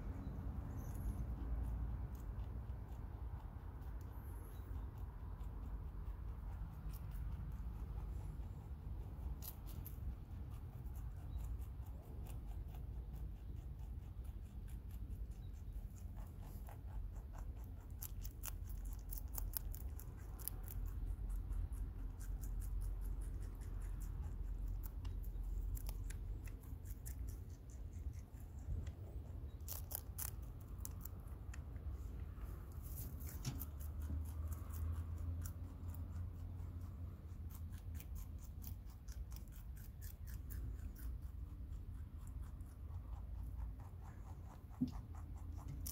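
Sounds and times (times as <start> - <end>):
low steady rumble: 0.0 - 45.9
rabbit chewing crunchy greens: 0.0 - 45.9.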